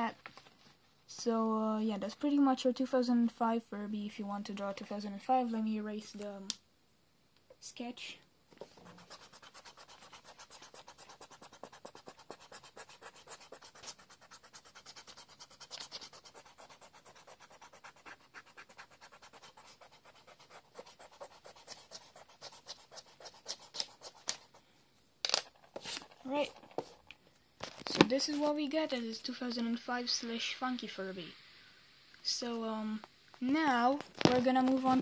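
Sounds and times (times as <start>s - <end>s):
eraser rubbing on paper: 8.6s - 24.6s.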